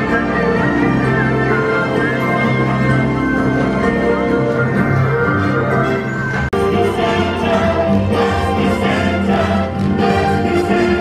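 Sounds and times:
orchestral music: 0.0s - 11.0s
choir singing: 6.6s - 11.0s.

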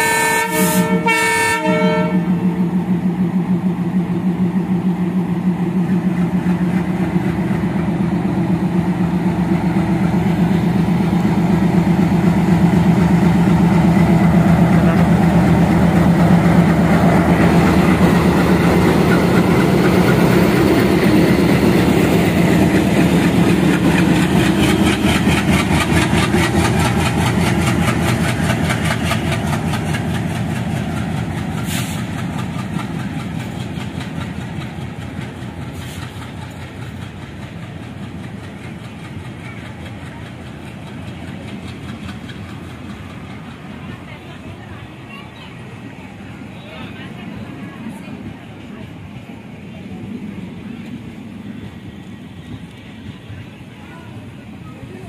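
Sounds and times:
diesel locomotive engine: 0.0s - 55.0s
train wheels clattering: 6.0s - 44.5s.

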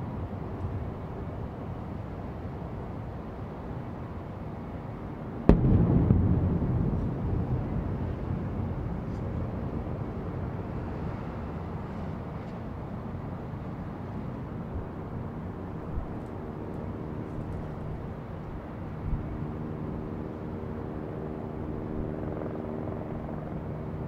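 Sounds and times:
firework boom: 5.5s - 9.3s
low rumble: 5.5s - 10.2s.

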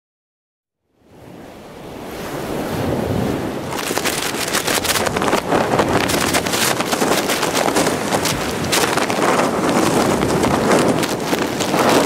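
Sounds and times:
wind buffeting microphone: 1.1s - 12.0s
waves splashing against seawall: 1.9s - 12.0s.

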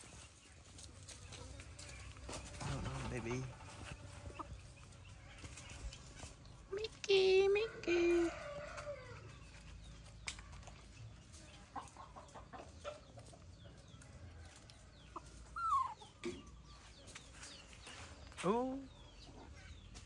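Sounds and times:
clicks and taps from wire cage: 10.0s - 10.8s.

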